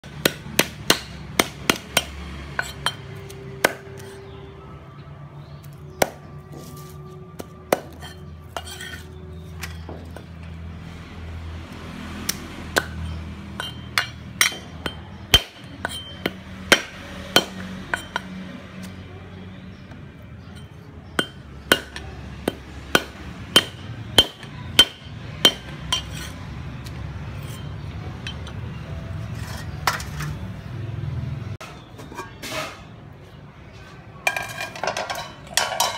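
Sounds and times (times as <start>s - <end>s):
cleaver chopping on wooden board: 0.1s - 2.8s, 21.2s - 26.3s.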